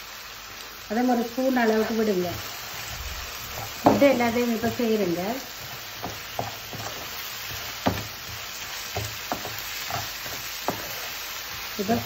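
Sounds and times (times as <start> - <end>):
food sizzling in a frying pan: 0.0 - 12.0
spatula knocking against pan: 3.7 - 4.2, 6.0 - 11.0.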